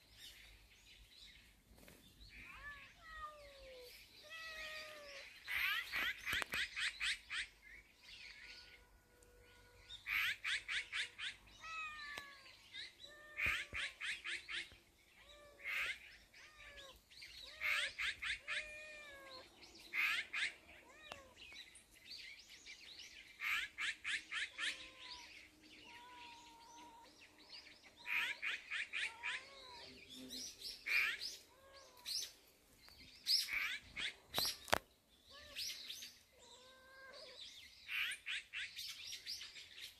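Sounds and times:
short falling bird calls: 0:23.4 - 0:32.4.

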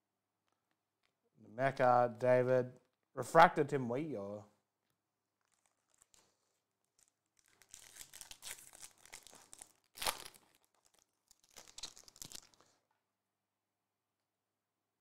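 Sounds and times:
foil wrapper tearing and crinkling: 0:05.4 - 0:12.8.

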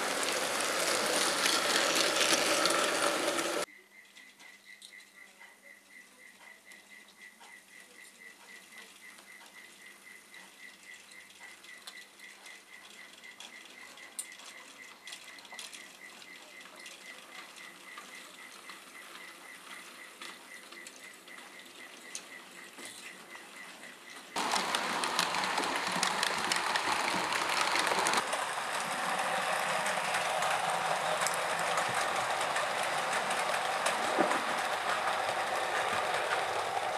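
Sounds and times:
model train wheels rattling: 0:00.0 - 0:03.7, 0:10.7 - 0:36.9.

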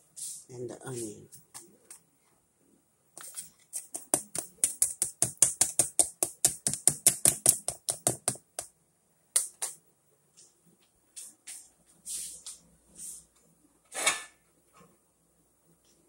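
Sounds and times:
utensil tapping plastic container: 0:03.8 - 0:08.7.

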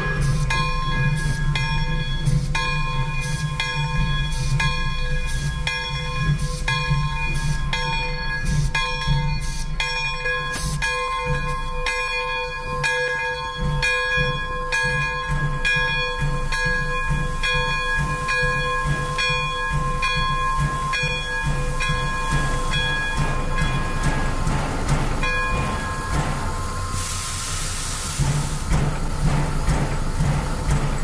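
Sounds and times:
locomotive bell ringing: 0:00.0 - 0:27.4
steam hiss: 0:15.4 - 0:31.0.

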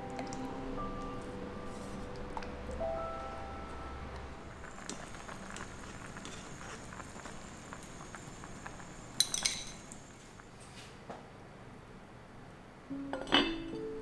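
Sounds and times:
metal utensil clinking on pot: 0:09.2 - 0:09.8, 0:13.2 - 0:13.6.

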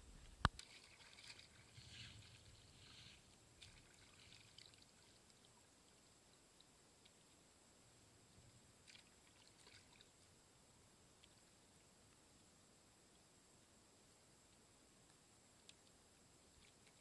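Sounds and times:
water splashing and dripping: 0:00.4 - 0:05.5, 0:08.8 - 0:10.1.

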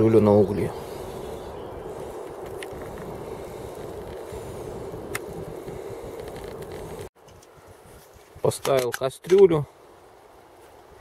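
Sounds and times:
wind on microphone: 0:00.0 - 0:08.5
faint fire crackles: 0:00.0 - 0:11.0
paper burning with rushing flames: 0:00.8 - 0:07.2.

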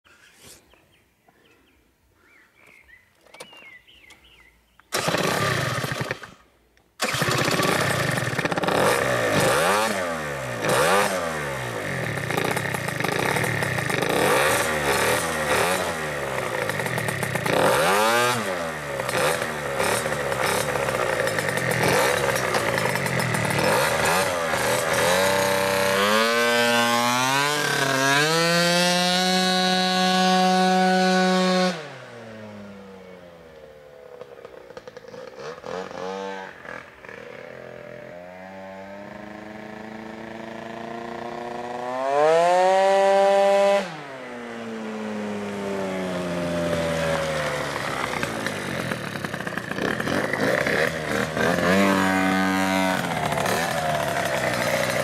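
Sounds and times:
two-stroke scooter engine revving: 0:04.9 - 0:55.0.

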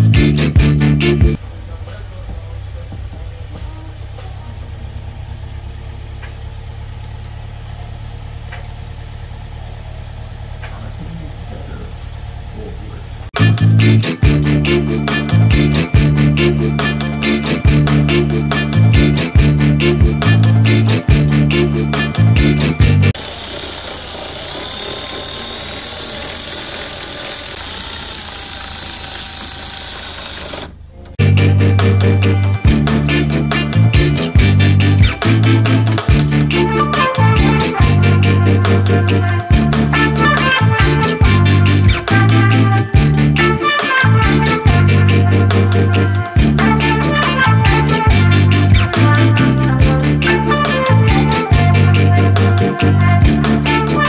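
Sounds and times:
pickup engine idling: 0:01.4 - 0:13.4, 0:23.2 - 0:31.2
cordless ratchet motor running: 0:23.2 - 0:30.8.

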